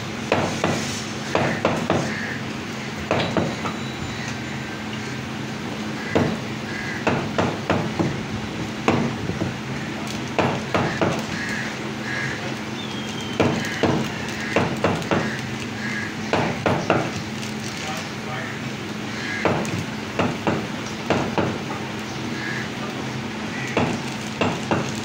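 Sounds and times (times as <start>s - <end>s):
cleaver chopping on wooden block: 1.4s - 2.1s, 7.0s - 8.2s, 10.4s - 11.2s, 13.4s - 15.3s, 16.3s - 17.1s, 23.8s - 24.9s.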